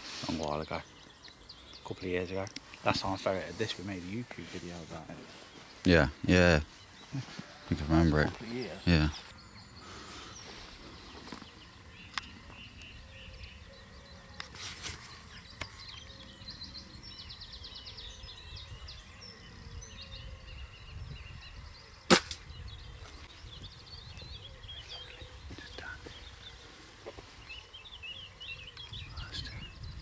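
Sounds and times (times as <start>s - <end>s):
birds chirping faintly: 0.0s - 30.0s
air rifle shot: 22.1s - 22.5s.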